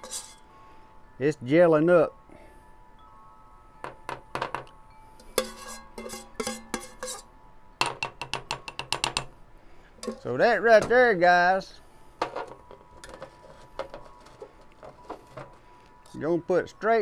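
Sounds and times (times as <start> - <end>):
spatula scraping metal saucepan: 0.0 - 0.4, 5.4 - 7.3, 13.0 - 15.6.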